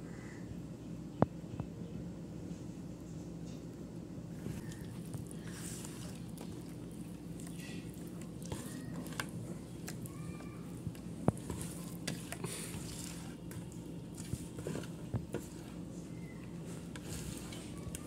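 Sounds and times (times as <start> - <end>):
steady low hum: 0.0 - 18.0
hand squishing thick paste: 4.5 - 18.0.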